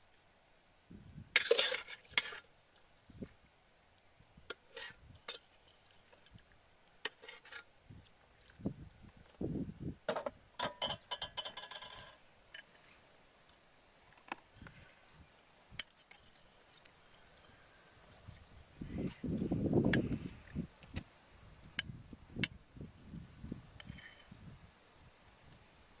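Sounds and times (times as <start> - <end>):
spoon scraping a bowl: 4.5 - 5.5, 7.1 - 7.7, 23.8 - 24.4.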